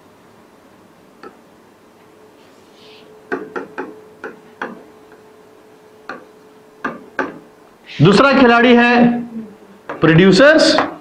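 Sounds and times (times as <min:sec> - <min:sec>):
marker knocking on writing board: 0:03.3 - 0:04.8, 0:06.8 - 0:07.4.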